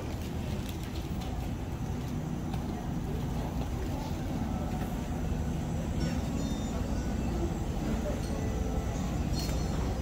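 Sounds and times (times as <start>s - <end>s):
low rumble of traffic: 0.0s - 10.0s
indistinct voices: 0.4s - 10.0s.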